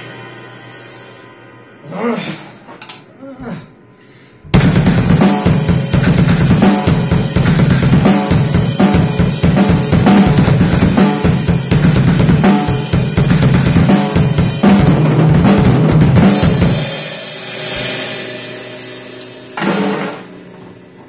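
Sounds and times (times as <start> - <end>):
drum kit played fast: 4.5 - 21.0.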